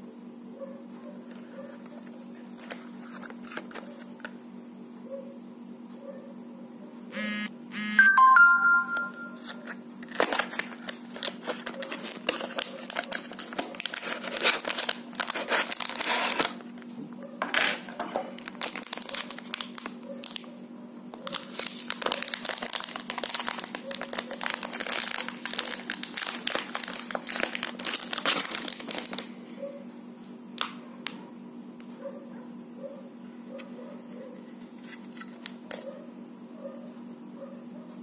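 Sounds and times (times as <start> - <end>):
plastic bag crinkling: 10.1 - 16.8, 17.9 - 20.5, 21.2 - 29.3.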